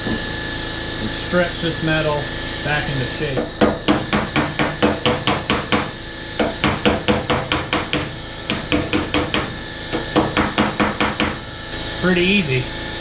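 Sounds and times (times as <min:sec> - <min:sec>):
hammer tapping on sheet metal: 0:03.4 - 0:11.4.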